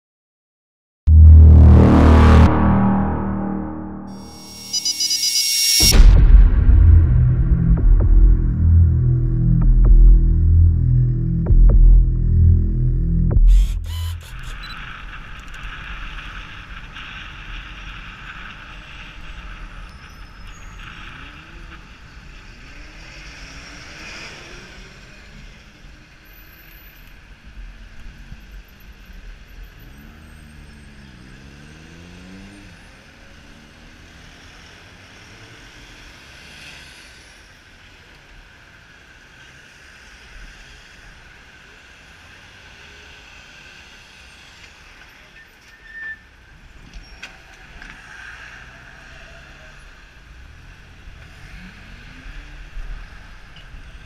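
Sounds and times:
vehicle engines passing close by: 0:14.5 - 0:26.2, 0:27.0 - 0:37.4, 0:47.2 - 0:54.0.

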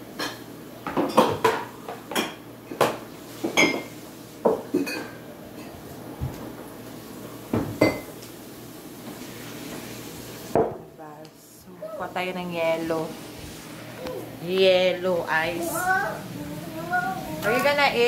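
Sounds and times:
dishes and glasses clattering: 0:00.2 - 0:03.9, 0:04.5 - 0:05.8, 0:07.6 - 0:08.1.

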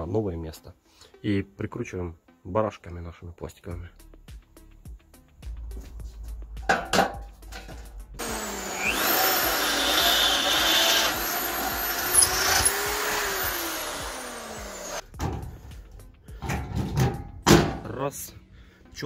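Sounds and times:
electric drill boring metal: 0:08.2 - 0:15.0.

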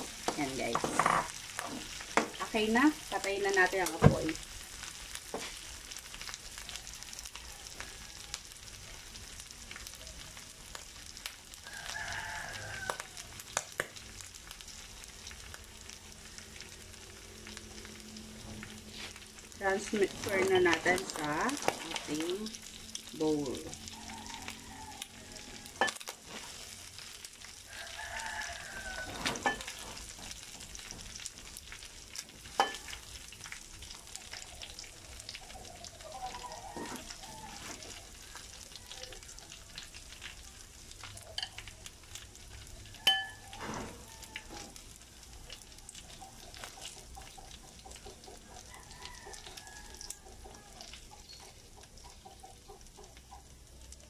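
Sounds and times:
metal utensil scraping a pan: 0:00.0 - 0:02.0, 0:18.9 - 0:22.4, 0:28.9 - 0:30.5
faint sizzling in oil: 0:00.0 - 0:54.0
utensil clinking on pan and bowl: 0:19.7 - 0:22.4, 0:25.8 - 0:26.1, 0:29.2 - 0:30.0, 0:32.5 - 0:33.0, 0:41.3 - 0:41.7, 0:43.0 - 0:43.5.

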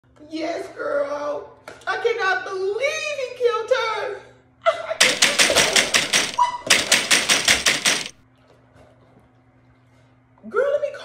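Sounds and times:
rapid knocking on a door: 0:05.0 - 0:08.2.

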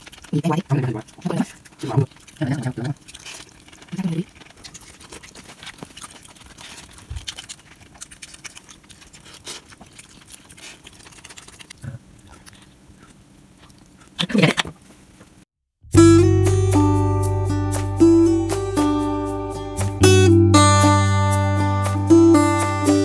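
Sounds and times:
slurping eating sound: 0:00.0 - 0:14.2
chewing: 0:00.0 - 0:14.8.

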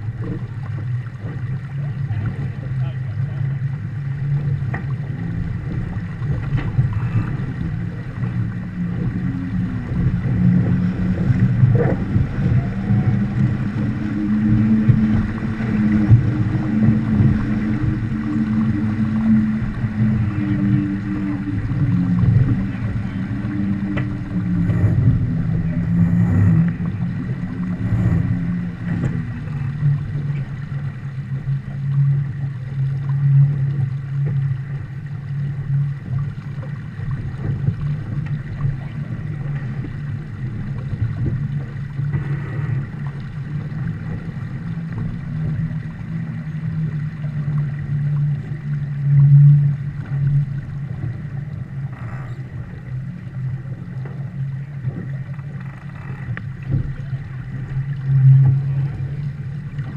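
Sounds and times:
water rushing along boat hull: 0:00.0 - 0:59.9
wind on microphone: 0:00.0 - 0:59.9.

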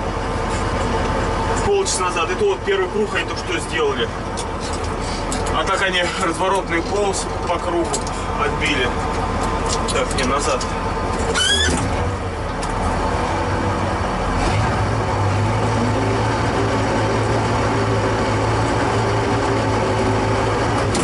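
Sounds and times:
tractor diesel engine running: 0:00.0 - 0:21.0
rising squeal: 0:11.3 - 0:12.0.

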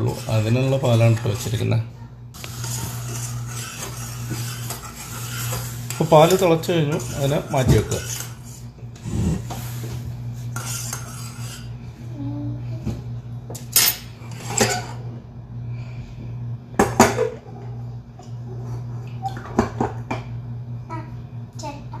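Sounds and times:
steady low hum: 0:00.0 - 0:22.0
spoon scraping in metal saucepan: 0:02.4 - 0:08.6, 0:10.5 - 0:11.8.

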